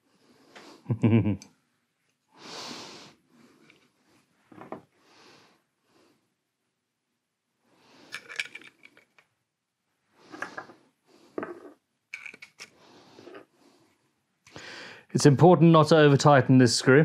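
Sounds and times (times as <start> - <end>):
metal parts clicking and clinking: 8.1 - 9.2, 12.1 - 12.7.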